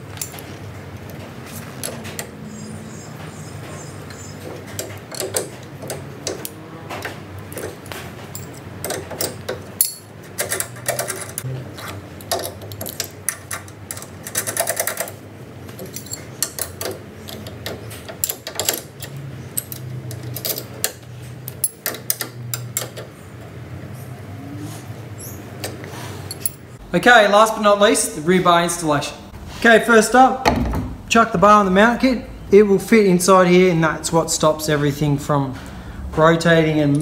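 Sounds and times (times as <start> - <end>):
metal clinks of spanners: 15.8 - 17.5.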